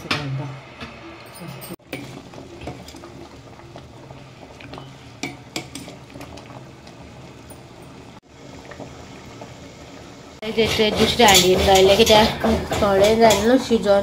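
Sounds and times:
syrup bubbling in a pot: 0:01.8 - 0:10.5.

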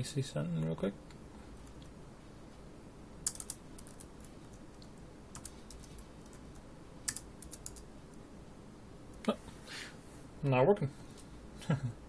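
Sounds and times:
keyboard keystrokes: 0:03.3 - 0:04.1.

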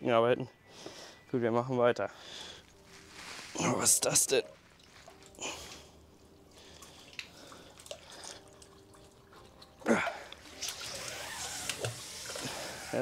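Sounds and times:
water dripping: 0:03.8 - 0:12.5.

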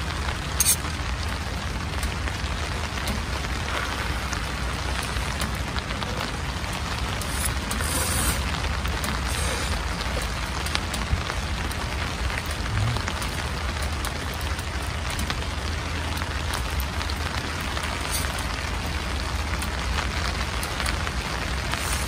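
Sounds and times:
rain pattering on tent fabric: 0:00.0 - 0:22.0
low rumble: 0:12.3 - 0:14.1.

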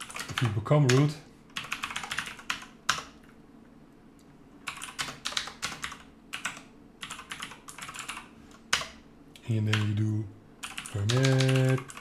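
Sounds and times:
computer keyboard typing: 0:00.0 - 0:03.4, 0:04.6 - 0:09.0, 0:09.6 - 0:10.0, 0:10.6 - 0:12.0.

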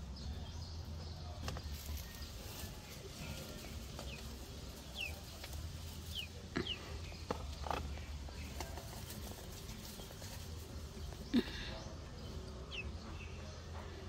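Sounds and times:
dry grass rustling: 0:01.4 - 0:11.7.

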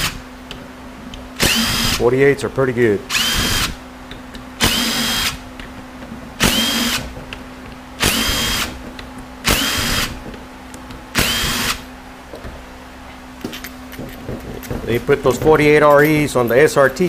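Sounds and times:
power drill whirring: 0:01.4 - 0:02.0, 0:03.1 - 0:03.8, 0:04.6 - 0:05.4, 0:06.4 - 0:07.1, 0:08.0 - 0:08.8, 0:09.4 - 0:10.2, 0:11.2 - 0:11.8.

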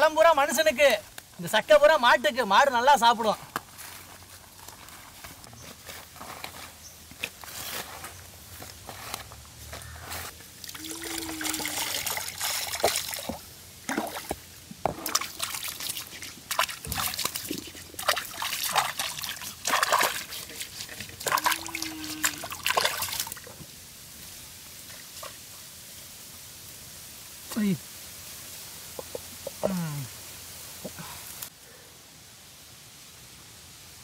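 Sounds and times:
liquid trickling and sloshing: 0:10.4 - 0:23.7
small wet clicks and splatters: 0:15.0 - 0:23.6.

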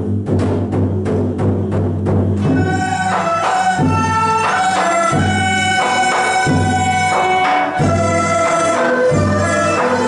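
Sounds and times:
bamboo flutes: 0:02.4 - 0:10.0
erhu melody: 0:02.4 - 0:10.0.

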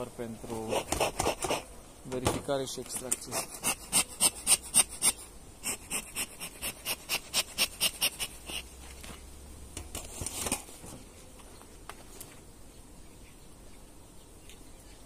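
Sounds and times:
quick rhythmic scraping: 0:00.5 - 0:01.7, 0:02.9 - 0:08.8.

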